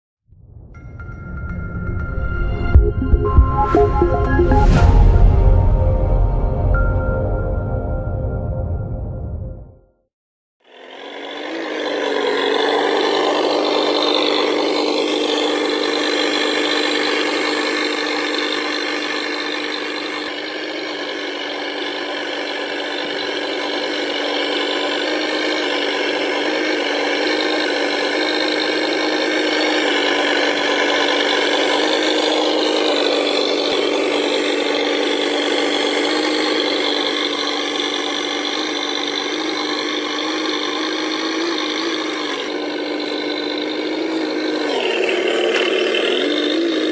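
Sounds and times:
simulated engine sound: 1.8 - 9.8.

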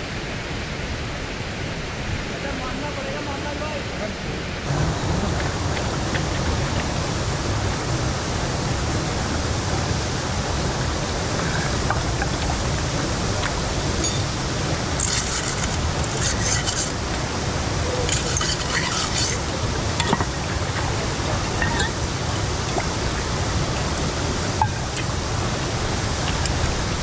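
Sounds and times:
waterfall and stream rushing: 0.0 - 27.0
splashing as pan is scrubbed: 15.0 - 17.2, 18.1 - 22.9.

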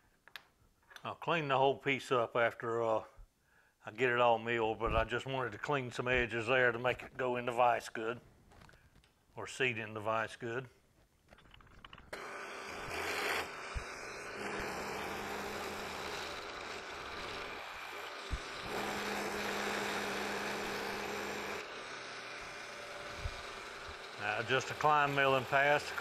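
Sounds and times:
milling machine cutting metal: 12.1 - 26.0.

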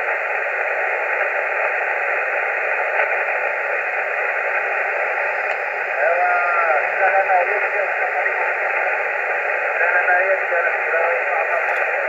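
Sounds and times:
radio static hiss: 0.0 - 12.0
distorted radio voice: 4.1 - 12.0.

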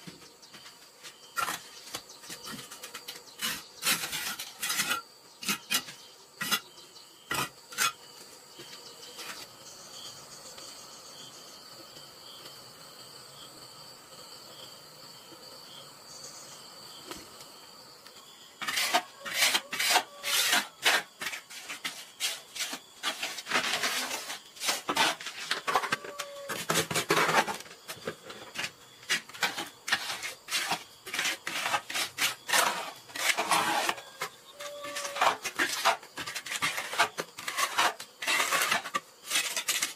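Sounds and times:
trowel rasping mortar: 3.4 - 6.7, 18.6 - 26.0, 29.1 - 39.9.

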